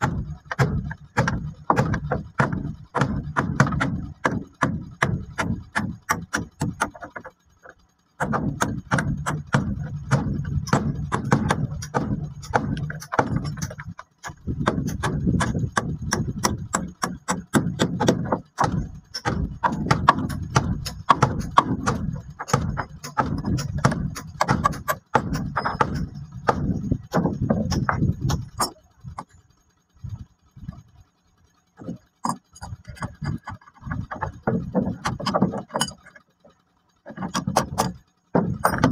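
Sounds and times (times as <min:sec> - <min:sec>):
hammer driving nails into wood: 0:00.0 - 0:07.3, 0:08.2 - 0:29.3, 0:37.1 - 0:38.9.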